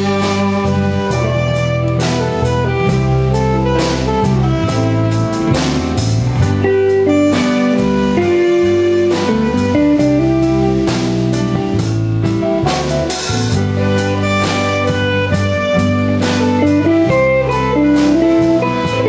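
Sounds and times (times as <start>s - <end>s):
small jazz combo playing: 0.0s - 19.0s.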